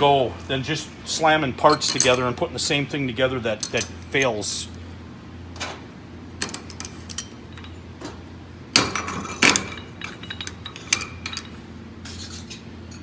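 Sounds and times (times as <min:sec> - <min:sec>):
metal parts clinking: 0:01.6 - 0:02.4, 0:03.6 - 0:04.3, 0:06.4 - 0:07.8, 0:08.9 - 0:11.6.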